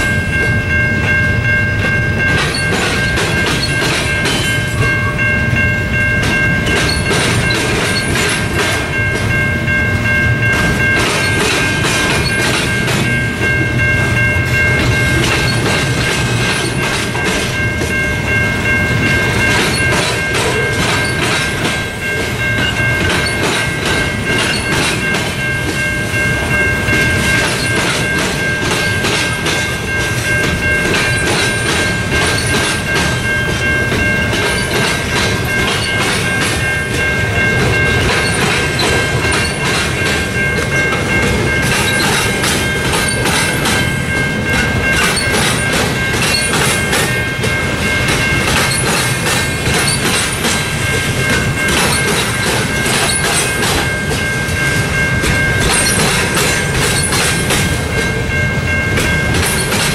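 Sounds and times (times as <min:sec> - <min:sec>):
high ringing tone: 0:00.0 - 0:59.9
train wheels clacking over rails: 0:00.0 - 0:59.9.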